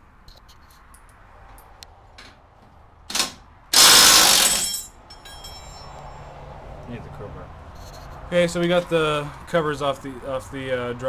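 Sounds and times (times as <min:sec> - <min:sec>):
cordless power tool bursts: 0:03.1 - 0:04.8
hand tools clicking on bolts: 0:03.1 - 0:05.6.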